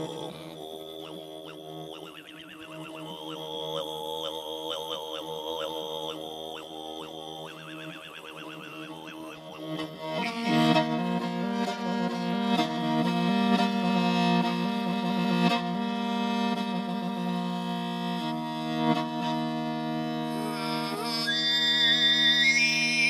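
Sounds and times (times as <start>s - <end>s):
throat singing whistling overtones: 0.0s - 10.6s, 20.4s - 23.0s
bowed fiddle sustained notes: 0.0s - 23.0s.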